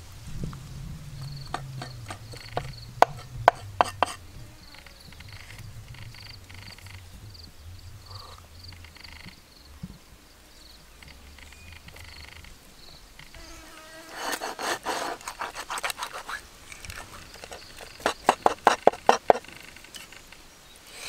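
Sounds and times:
cleaver cutting fish on board: 1.5s - 4.2s, 14.2s - 16.4s, 17.4s - 19.5s.

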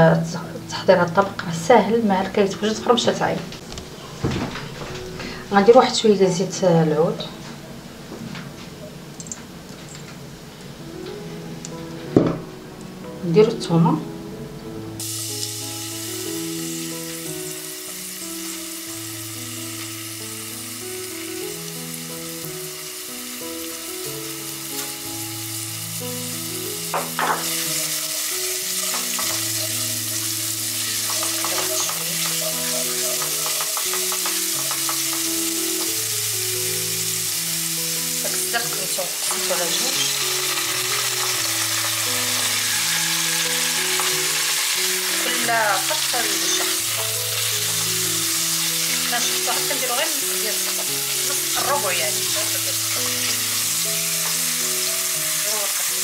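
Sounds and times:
slow background music: 0.0s - 56.0s
garlic sizzling in oil: 15.0s - 56.0s.

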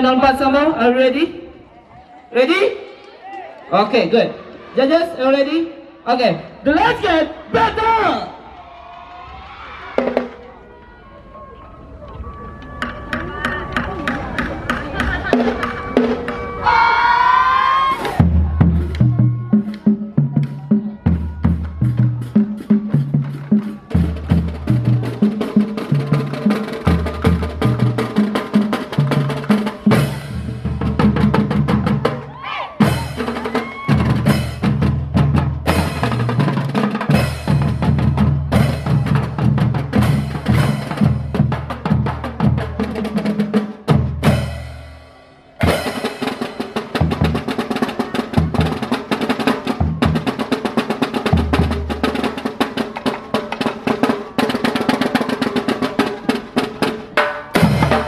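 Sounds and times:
children's drum band playing: 9.9s - 10.5s, 12.5s - 58.0s.

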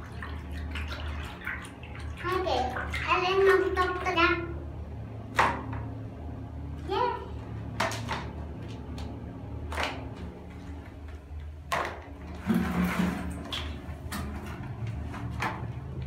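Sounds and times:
water splash: 0.0s - 3.6s
steady low hum: 0.0s - 16.0s.

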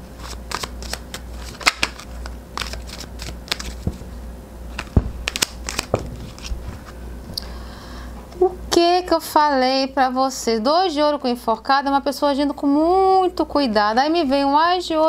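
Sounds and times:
cards snapping and rustling: 0.2s - 4.1s, 4.7s - 6.7s.

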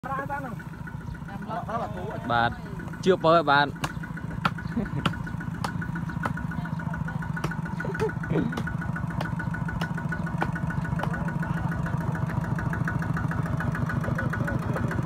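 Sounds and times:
diesel tractor engine running: 0.0s - 15.0s.

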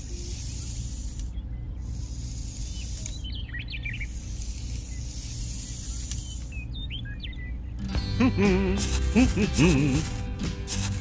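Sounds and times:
birds chirping: 0.0s - 11.0s
finger scraping through sand: 8.6s - 11.0s.

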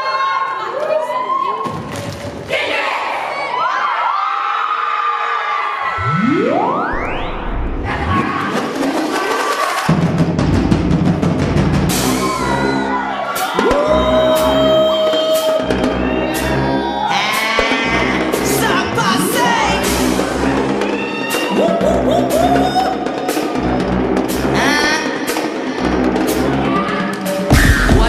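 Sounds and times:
synth pitch sweeps: 5.8s - 8.6s
held synth tone: 6.0s - 7.9s
dance music with drum beat: 7.7s - 28.0s.

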